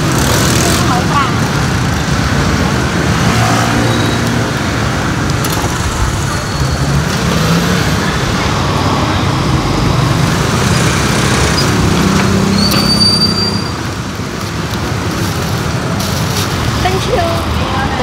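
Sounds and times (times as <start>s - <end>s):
street traffic: 0.0s - 18.0s.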